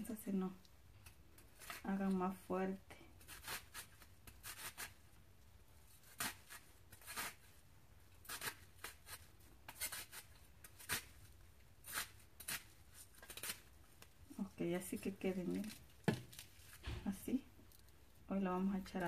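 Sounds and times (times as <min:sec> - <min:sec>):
knife cutting onion: 0:01.1 - 0:02.3, 0:03.2 - 0:05.0, 0:05.9 - 0:07.5, 0:08.2 - 0:13.7.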